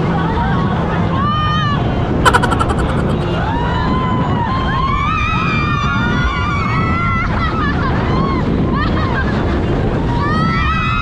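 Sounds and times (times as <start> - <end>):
wind and boat noise: 0.0 - 11.0
rapid cries: 2.3 - 3.6.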